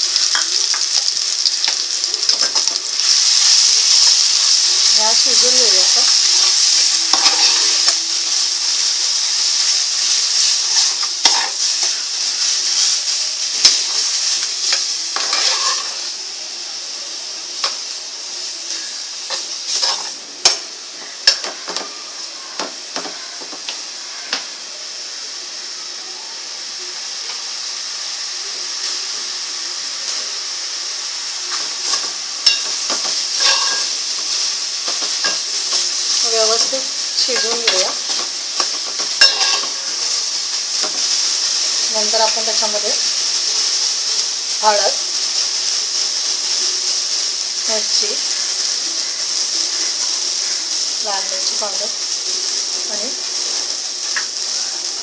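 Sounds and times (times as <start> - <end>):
paste sizzling in hot oil: 0.0 - 55.0
metal spoon stirring and scraping: 0.2 - 8.0, 10.4 - 11.8, 14.7 - 16.0, 19.3 - 20.6, 31.5 - 33.9, 34.8 - 40.1.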